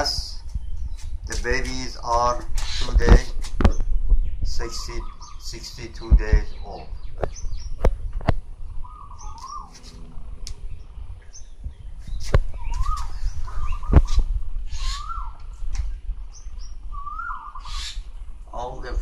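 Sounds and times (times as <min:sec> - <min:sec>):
high bird chirps: 0:03.6 - 0:18.3
bird warbling whistled call: 0:08.8 - 0:10.0, 0:12.1 - 0:15.6, 0:16.3 - 0:18.1.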